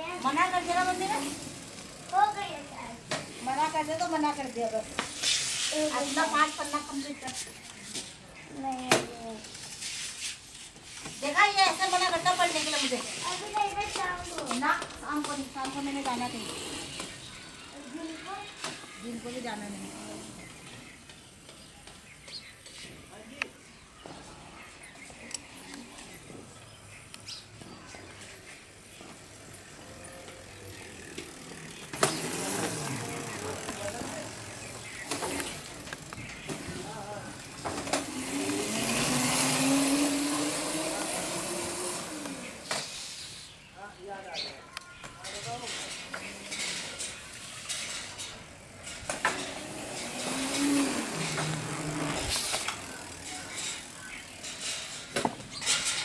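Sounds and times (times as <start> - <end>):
electric bike drive rattling and clicking: 0.0 - 5.2, 11.2 - 22.6, 24.8 - 43.6, 44.8 - 56.0
tyres rolling over concrete: 27.4 - 43.0, 45.0 - 56.0
electric motor whine: 37.8 - 42.7.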